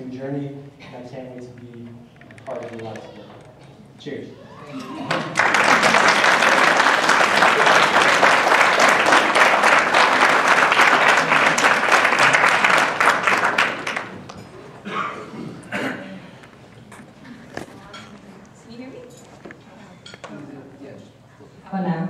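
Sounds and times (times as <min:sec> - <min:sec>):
crowd applauding: 0:05.0 - 0:14.5.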